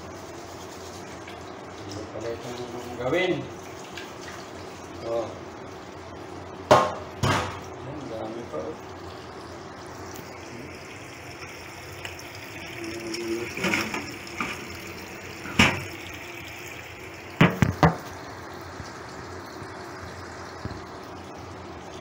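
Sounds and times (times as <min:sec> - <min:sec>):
tap water running into sink: 0:01.0 - 0:05.3, 0:08.3 - 0:21.3
sharp knocks: 0:17.4 - 0:18.0.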